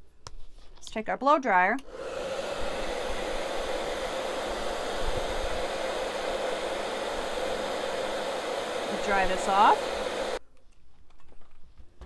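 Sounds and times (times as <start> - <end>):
hair dryer blowing air: 1.8 - 10.4.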